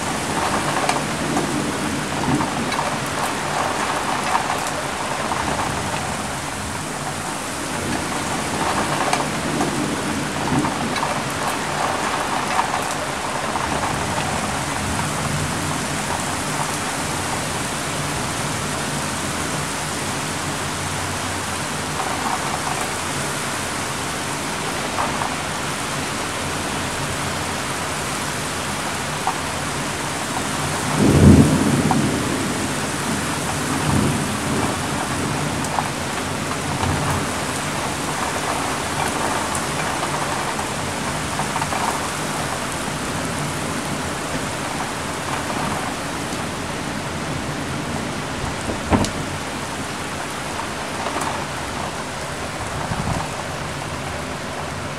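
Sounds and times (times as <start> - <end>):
thunder rumbling: 0.0 - 27.7, 28.6 - 54.9
heavy rain pouring: 0.0 - 54.9.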